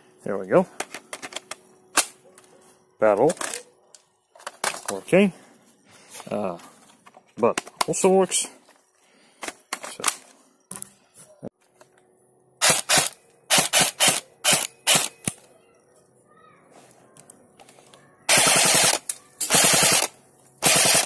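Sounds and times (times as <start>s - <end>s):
airsoft gun firing: 12.6s - 15.4s, 18.3s - 21.0s.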